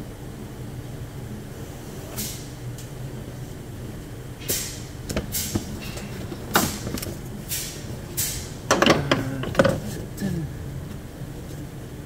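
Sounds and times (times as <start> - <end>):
knocks and clatter: 8.7 - 9.9.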